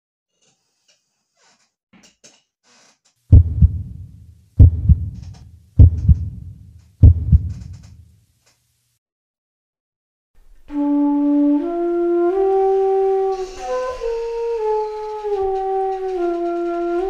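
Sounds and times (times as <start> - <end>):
heartbeat double thumps: 3.3 - 7.8.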